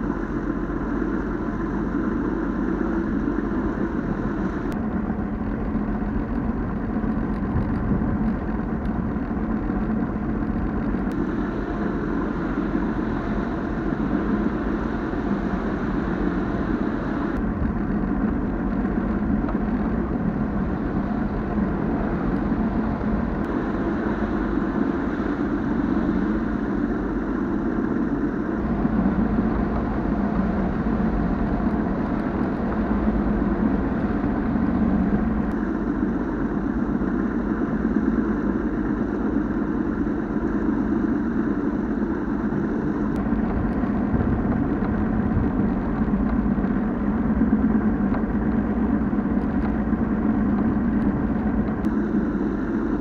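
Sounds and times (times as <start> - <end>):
outboard engine running: 0.0 - 53.0.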